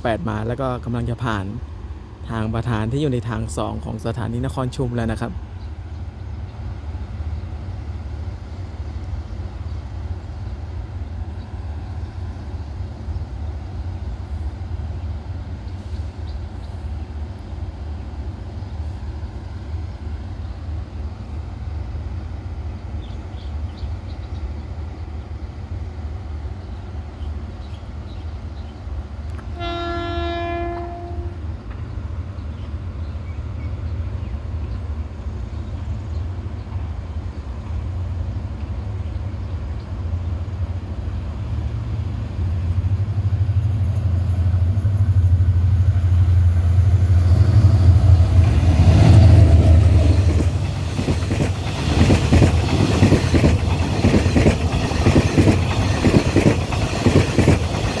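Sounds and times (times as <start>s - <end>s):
diesel trains rumbling: 0.0s - 58.0s
train horn: 29.4s - 31.5s.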